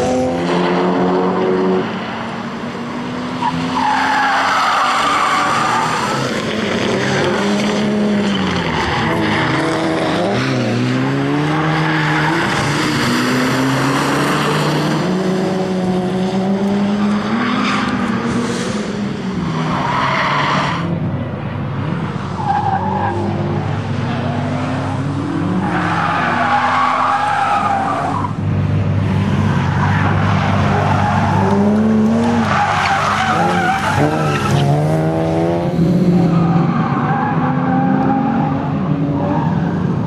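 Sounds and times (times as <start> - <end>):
car engine revving: 20.7 - 38.6.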